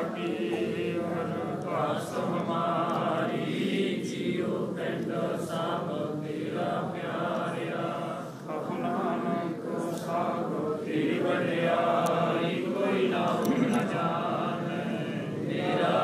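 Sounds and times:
group chanting: 0.0 - 16.0.

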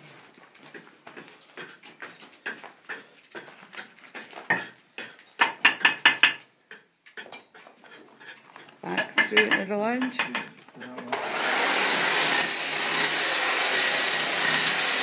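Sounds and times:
trowel clinking on concrete blocks: 9.0 - 11.0.

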